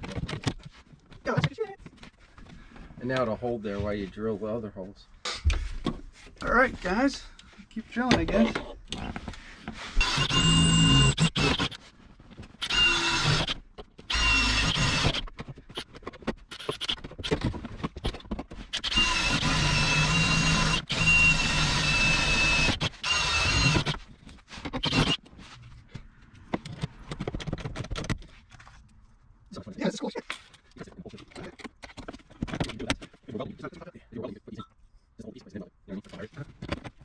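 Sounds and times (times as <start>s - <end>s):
cordless drill boring sheet metal: 10.0s - 11.8s, 12.6s - 15.2s, 18.8s - 24.0s, 24.8s - 25.2s.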